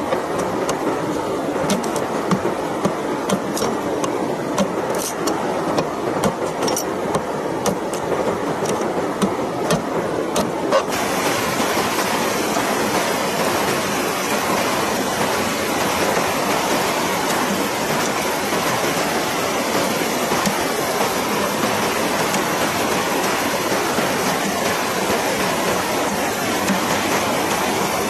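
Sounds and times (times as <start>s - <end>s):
fast river rushing: 0.0s - 28.0s
knife chopping bamboo: 1.7s - 8.0s, 8.6s - 10.6s.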